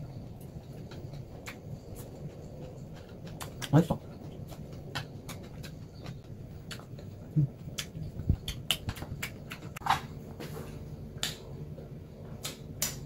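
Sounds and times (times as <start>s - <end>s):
person chewing crunchy food: 0.4s - 10.0s.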